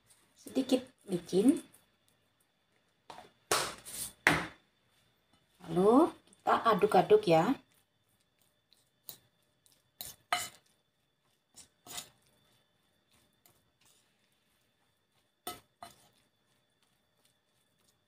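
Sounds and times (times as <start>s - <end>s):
spoon stirring mixture in bowl: 4.9s - 18.0s.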